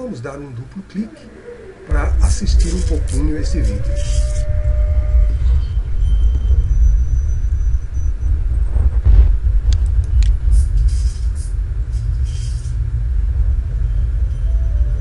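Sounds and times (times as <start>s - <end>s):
deep steady rumble: 0.2s - 15.0s
whoosh: 1.8s - 11.6s.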